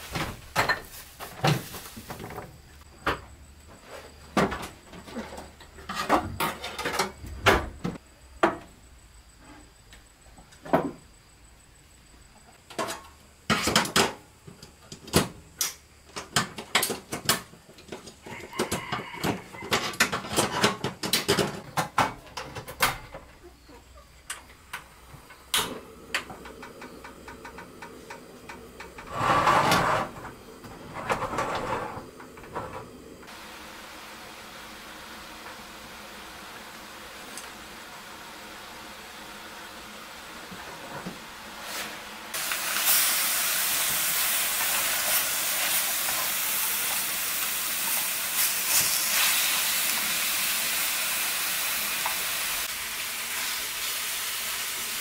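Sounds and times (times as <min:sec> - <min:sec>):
gas burner lighting with rush: 0:24.7 - 0:55.0.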